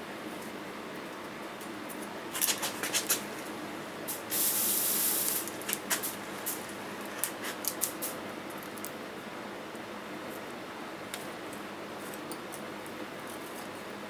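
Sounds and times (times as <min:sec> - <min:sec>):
fire hiss: 0:04.1 - 0:06.6.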